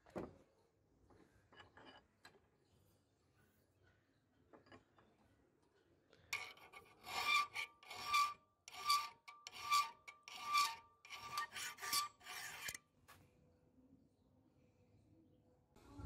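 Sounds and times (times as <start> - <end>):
file rasping on steel: 6.4 - 12.8.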